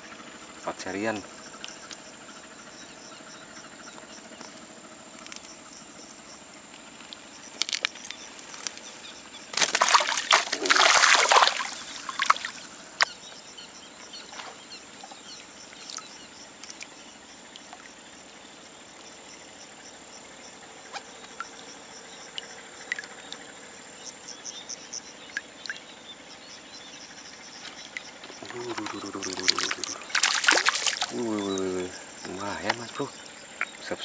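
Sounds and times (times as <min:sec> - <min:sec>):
high insect drone: 0:00.0 - 0:34.0
small clicks: 0:05.2 - 0:08.8, 0:16.6 - 0:16.9
small water splash: 0:09.5 - 0:13.1, 0:27.5 - 0:31.4
faint chirps: 0:10.5 - 0:34.0.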